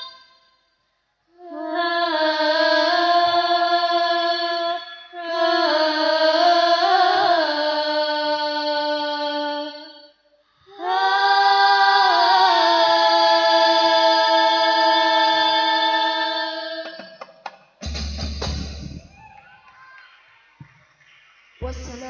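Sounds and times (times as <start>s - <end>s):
high voice singing devotional song: 0.0s - 0.4s, 1.3s - 17.3s, 21.6s - 22.0s.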